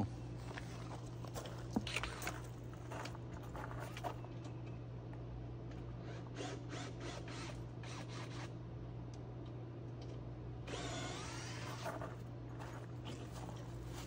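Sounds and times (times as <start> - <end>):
cordless power driver spinning: 10.7 - 12.2.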